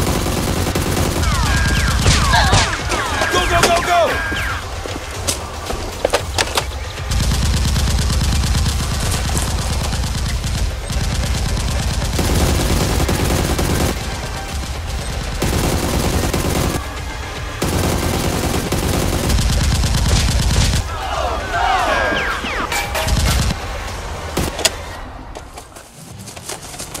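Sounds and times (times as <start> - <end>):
automatic gunfire: 0.0 - 4.1, 7.1 - 17.0, 17.6 - 20.9.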